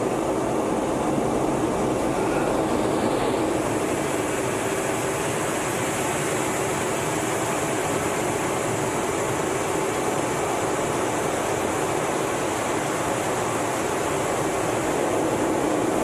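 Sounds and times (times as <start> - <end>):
jet engines and rushing airflow: 0.0 - 16.0.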